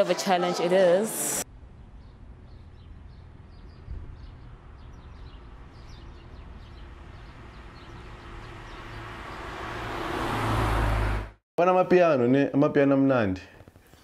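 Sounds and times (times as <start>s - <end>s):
vehicle passing: 1.2s - 11.4s
low traffic rumble: 1.4s - 11.4s
small birds chirping: 1.7s - 9.6s.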